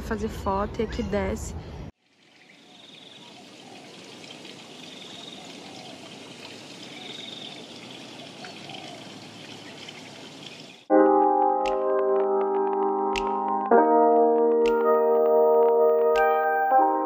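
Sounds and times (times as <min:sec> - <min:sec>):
loud keyboard music: 0:10.9 - 0:17.0.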